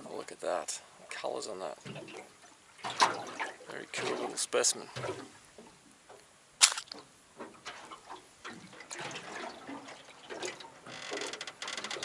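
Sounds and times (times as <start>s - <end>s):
water splashing: 1.1s - 5.7s, 6.6s - 11.0s.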